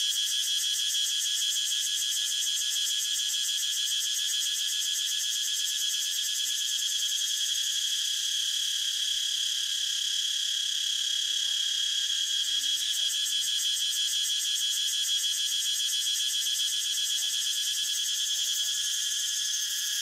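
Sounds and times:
cicada buzzing: 0:11.8 - 0:20.0.

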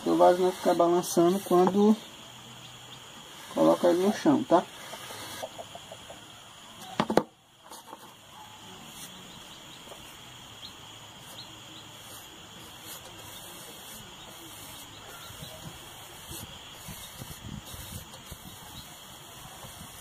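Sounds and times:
background hiss: 0:00.0 - 0:20.0
hand tool scraping cement: 0:12.0 - 0:20.0.

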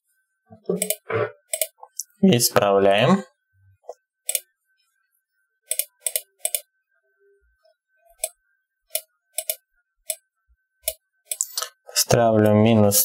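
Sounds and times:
computer mouse clicks: 0:00.7 - 0:01.8, 0:04.3 - 0:04.5, 0:05.7 - 0:06.7, 0:08.2 - 0:10.2, 0:10.8 - 0:11.7.

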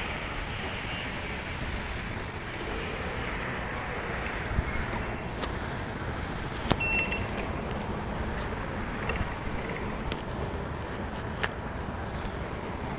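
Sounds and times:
busy indoor background noise: 0:00.0 - 0:12.9
short high beep: 0:06.8 - 0:07.3.

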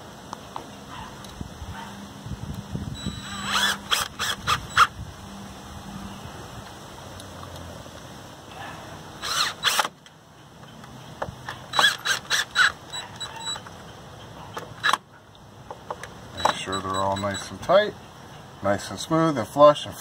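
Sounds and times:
cordless drill driving screws: 0:03.0 - 0:04.9, 0:09.2 - 0:09.9, 0:11.7 - 0:13.6.

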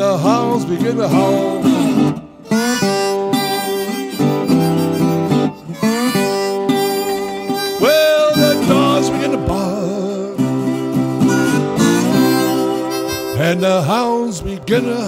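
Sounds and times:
rhythm guitar: 0:00.0 - 0:15.0
lead instrument sliding notes: 0:01.7 - 0:09.4, 0:10.7 - 0:14.2.

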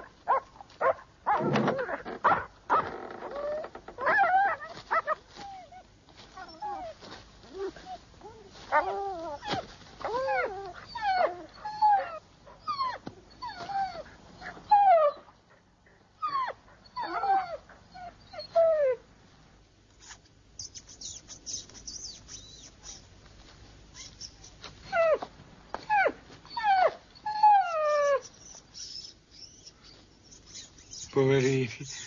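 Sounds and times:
dog whimpering and yelping: 0:00.0 - 0:15.3, 0:16.2 - 0:19.0, 0:20.1 - 0:23.1, 0:23.9 - 0:25.3, 0:25.9 - 0:32.0
faint high squeaks: 0:23.9 - 0:25.1, 0:27.6 - 0:32.0.

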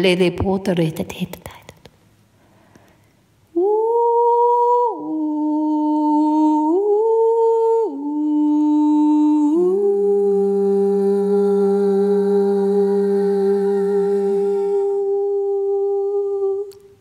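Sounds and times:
woman humming long notes: 0:03.5 - 0:17.0.

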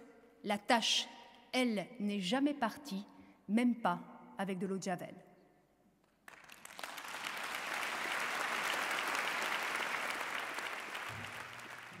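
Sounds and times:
audience applauding: 0:06.3 - 0:12.0.

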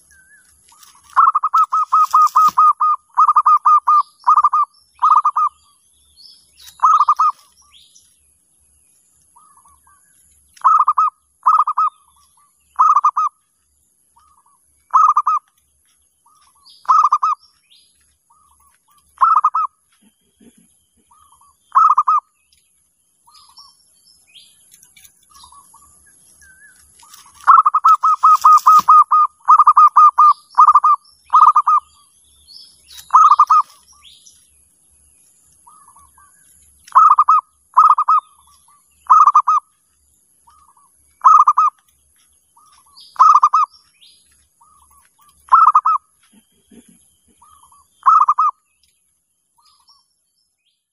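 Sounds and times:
faint small bird chirps: 0:00.0 - 0:50.9
doves cooing: 0:00.8 - 0:05.6, 0:06.7 - 0:07.5, 0:10.6 - 0:12.0, 0:12.8 - 0:13.4, 0:14.2 - 0:15.5, 0:16.3 - 0:17.4, 0:18.3 - 0:22.3, 0:27.0 - 0:32.0, 0:33.0 - 0:34.0, 0:36.9 - 0:39.7, 0:40.5 - 0:41.8, 0:42.6 - 0:43.8, 0:44.6 - 0:48.6.

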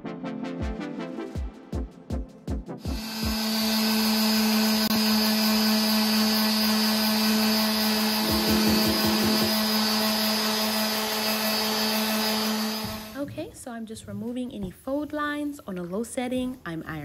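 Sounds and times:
orbital sander sanding wood: 0:02.9 - 0:13.1.

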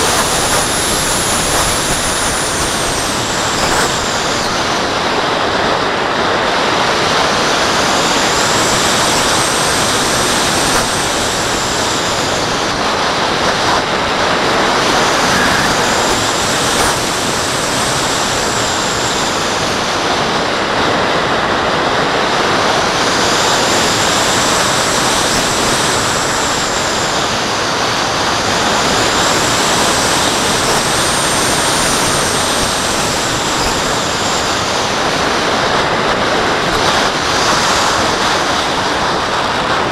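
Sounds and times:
rush of airflow: 0:00.0 - 0:39.9
faint high whistle: 0:15.0 - 0:16.9.

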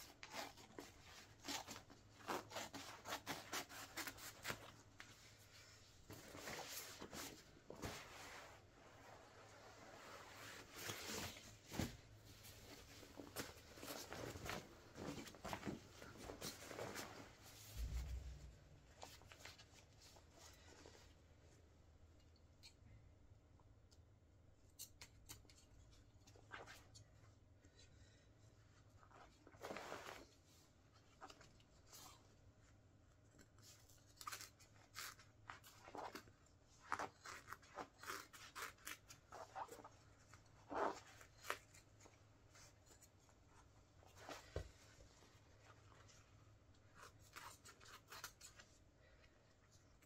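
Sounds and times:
fabric rustling: 0:00.1 - 0:21.4, 0:28.8 - 0:31.5.

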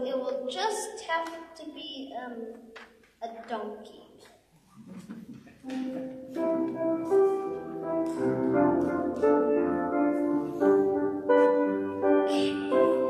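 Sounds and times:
piano chords: 0:05.6 - 0:13.0.

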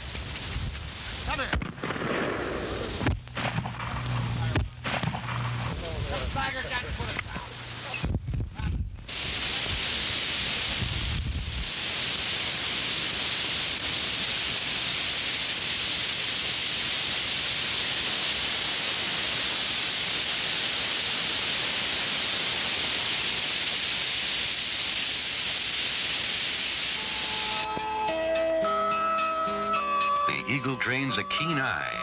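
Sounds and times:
steady hiss: 0:00.0 - 0:32.0.

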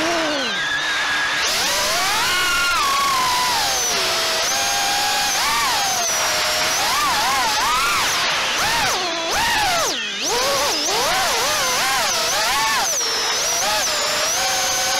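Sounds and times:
drone propellers whining: 0:00.0 - 0:14.9.

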